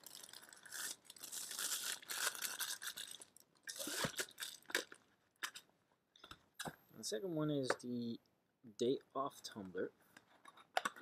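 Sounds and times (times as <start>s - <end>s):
plastic bag crinkling: 0.0s - 5.0s.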